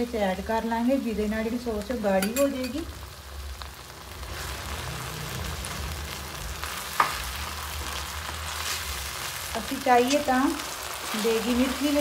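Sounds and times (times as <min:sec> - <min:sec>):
sauce sizzling in a pan: 0:00.0 - 0:12.0
utensil clinking against pan: 0:02.2 - 0:02.8.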